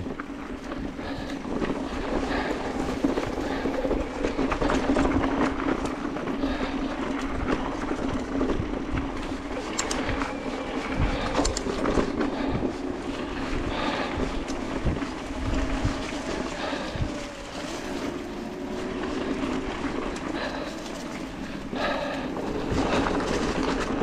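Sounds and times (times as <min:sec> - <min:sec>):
bike rattling over bumps: 0:00.0 - 0:24.0
bike tyre noise on dirt: 0:00.0 - 0:24.0
steady low hum: 0:00.0 - 0:24.0.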